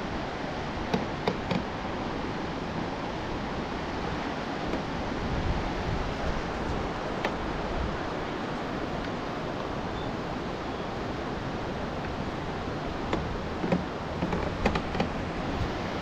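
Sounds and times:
river rapids rushing: 0:00.0 - 0:16.0
short knocks and clicks: 0:13.1 - 0:15.2.

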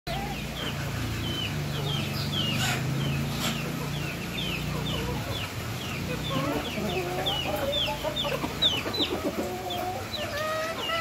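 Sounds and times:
chicks peeping: 0:00.1 - 0:11.0.

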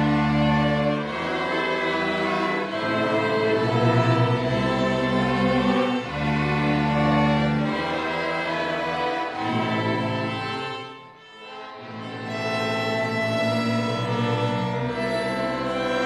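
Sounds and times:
ensemble playing slow classical piece: 0:00.0 - 0:16.0.

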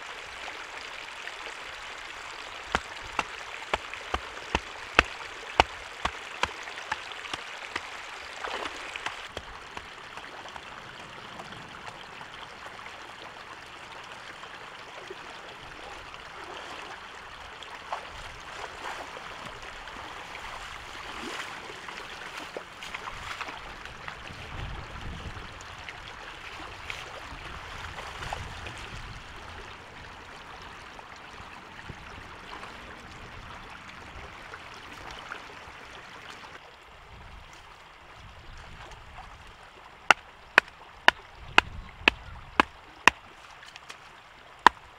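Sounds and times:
floodwater rushing: 0:01.0 - 0:14.2
splashes from wading: 0:02.2 - 0:11.9.

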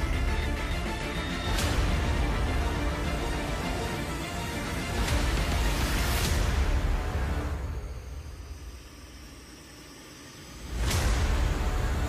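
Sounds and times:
background music with deep bass: 0:00.0 - 0:08.5, 0:10.6 - 0:12.0.

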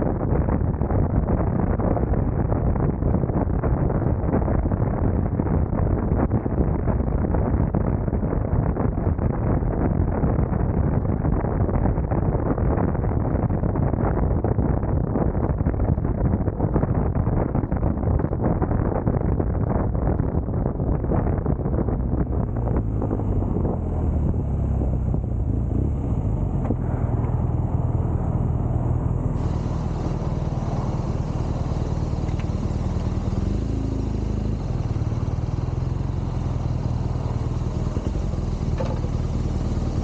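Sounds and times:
wind noise: 0:00.0 - 0:40.0
motorcycle engine running: 0:21.0 - 0:40.0.

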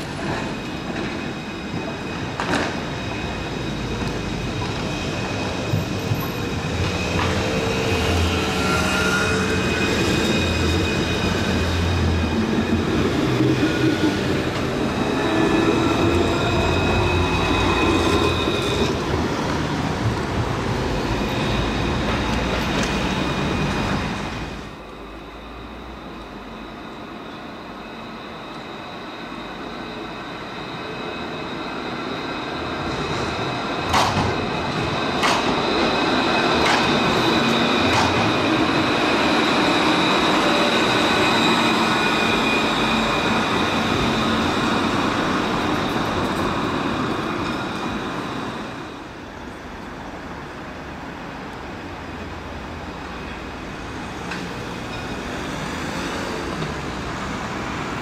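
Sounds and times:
tram running past: 0:00.0 - 0:58.0
wheels clacking over rail joints: 0:36.5 - 0:38.5.

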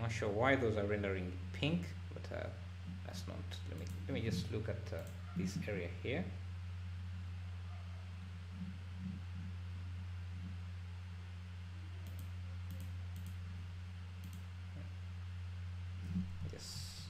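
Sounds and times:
low electrical hum: 0:00.0 - 0:17.0
computer mouse clicks: 0:12.0 - 0:13.4, 0:14.2 - 0:14.5.

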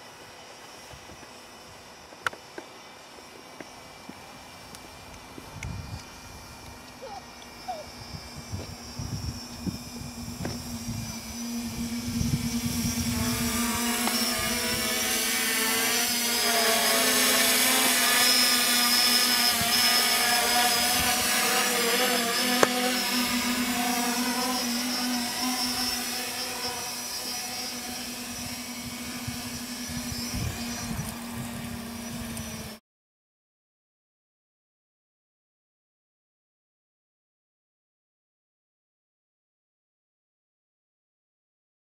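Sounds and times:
quadcopter motors humming: 0:00.0 - 0:32.8.

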